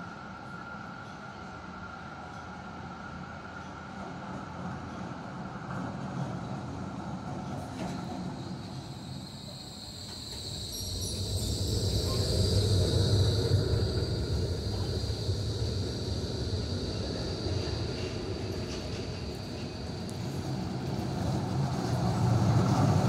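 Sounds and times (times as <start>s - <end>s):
tram rumbling on rails: 0.0s - 23.0s
high wheel squeal: 8.0s - 23.0s.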